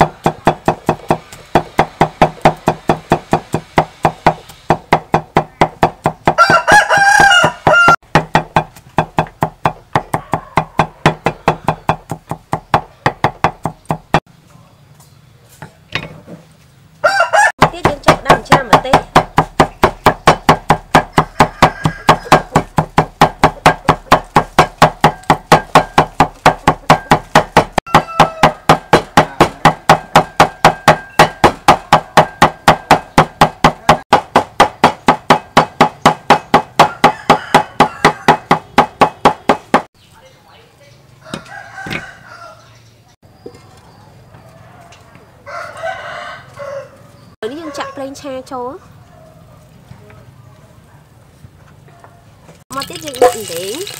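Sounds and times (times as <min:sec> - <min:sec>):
cleaver chopping on wooden block: 0:00.0 - 0:14.2, 0:17.6 - 0:39.9.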